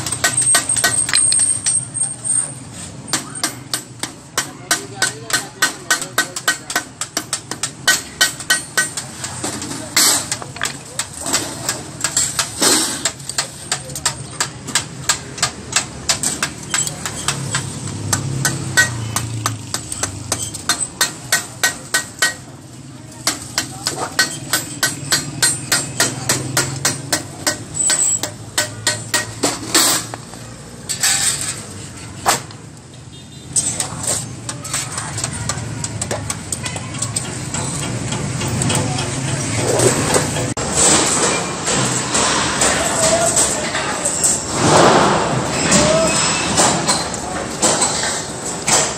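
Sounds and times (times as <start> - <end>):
hammer beating metal sheet: 23.2 - 30.3.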